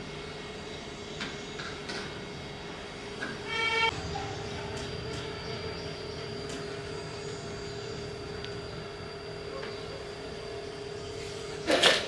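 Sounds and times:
steady background hum: 0.0 - 12.0
low and high steady tones: 3.5 - 11.3.

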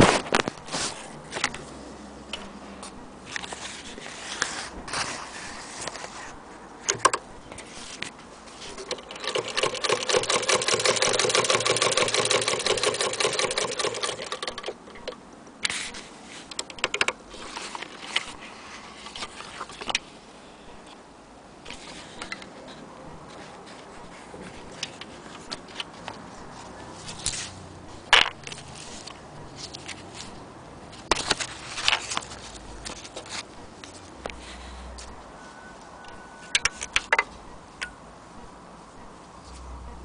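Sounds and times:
sewing machine clatter: 8.6 - 15.2.

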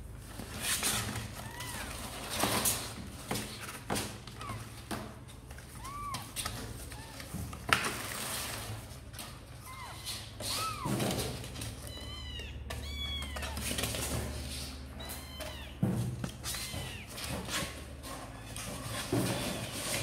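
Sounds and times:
kittens mewing: 5.6 - 7.3, 9.6 - 14.1, 14.7 - 15.8.

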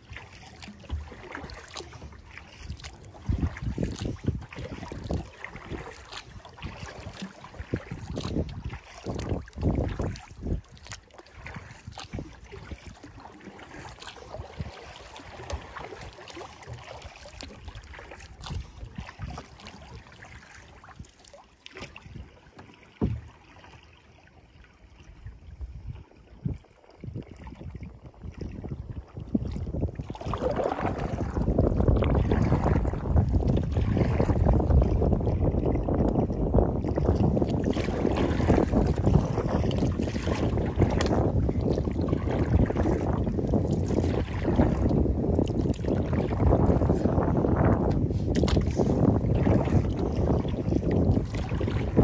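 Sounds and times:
wind buffeting microphone: 0.0 - 21.1, 25.2 - 52.0
water lapping against kayak hull: 0.0 - 52.0.

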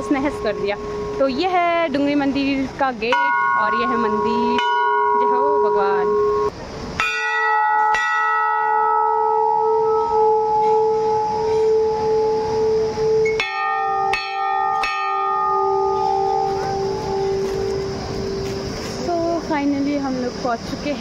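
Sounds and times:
brass bells ringing: 0.0 - 1.6, 3.1 - 19.1
lower-pitched bell strikes: 3.1 - 18.8.

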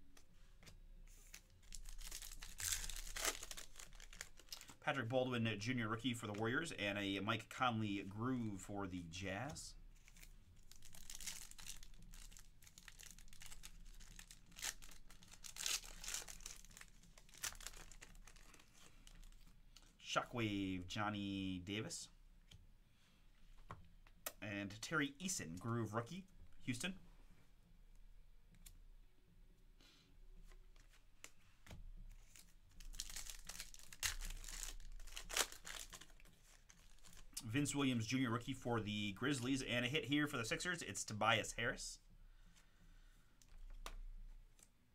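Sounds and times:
wrapper crinkling and tearing: 1.2 - 4.8, 10.0 - 19.5, 32.2 - 37.4.

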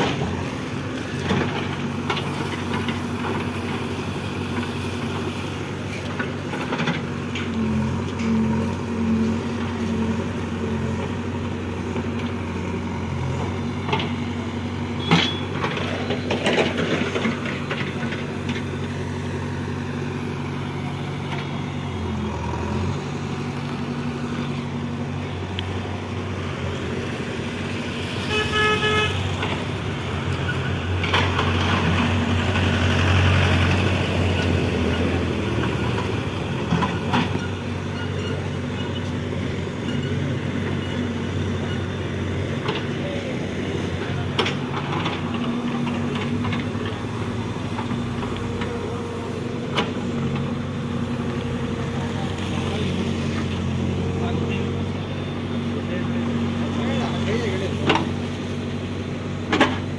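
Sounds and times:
backhoe diesel engine working: 0.0 - 59.9
vehicle horn: 28.2 - 29.3.

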